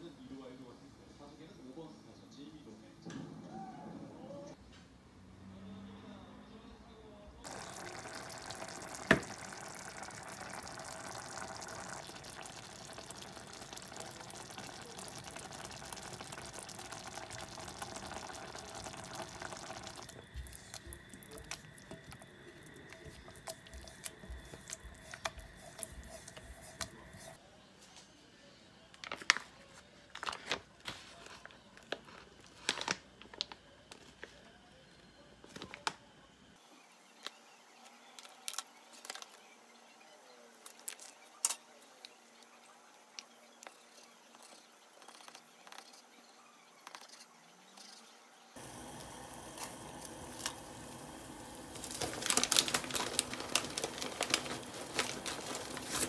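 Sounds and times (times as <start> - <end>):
sauce bubbling and spattering: 7.5 - 27.4
paper packaging rustling: 29.0 - 34.4, 49.4 - 56.0.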